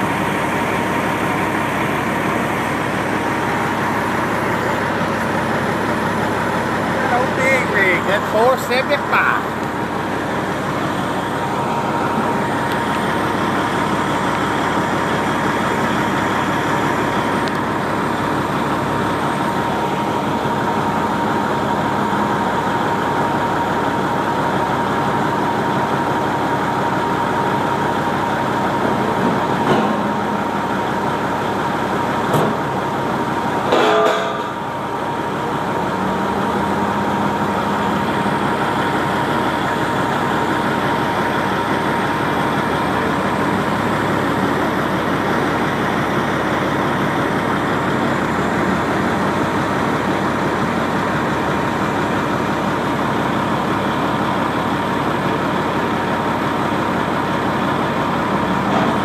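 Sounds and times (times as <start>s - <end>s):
truck engine running: 0.0s - 59.0s
sharp ringing knocks: 33.7s - 34.5s.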